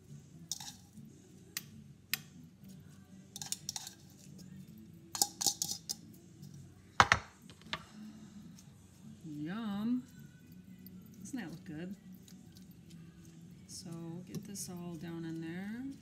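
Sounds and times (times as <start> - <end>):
fork and bowl clinking on glass dish: 0.5 - 0.9, 3.4 - 4.3, 5.2 - 6.1.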